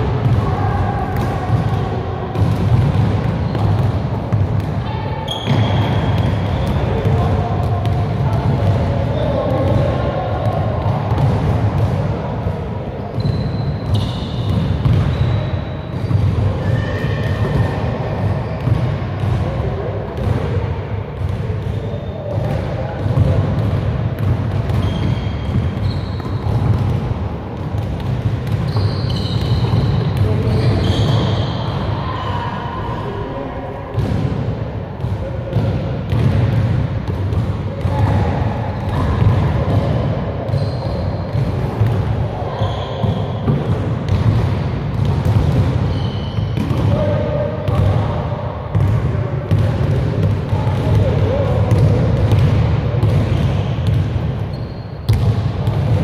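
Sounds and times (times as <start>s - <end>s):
basketball bouncing on gym floor: 0.0s - 31.9s, 33.9s - 56.0s
sneaker squeaks: 4.6s - 8.0s, 13.0s - 19.3s, 21.2s - 23.4s, 24.2s - 27.0s, 27.8s - 33.3s, 38.7s - 44.4s, 45.0s - 47.9s, 51.6s - 56.0s
basketball bouncing on hardwood floor: 43.5s - 45.9s, 48.7s - 51.1s, 55.1s - 56.0s.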